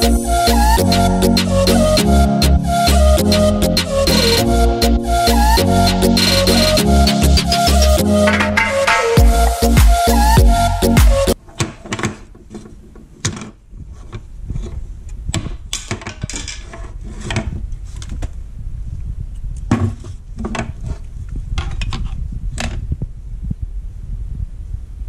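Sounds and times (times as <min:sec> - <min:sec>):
plastic and metal parts clattering: 0:11.4 - 0:14.8, 0:15.4 - 0:18.4.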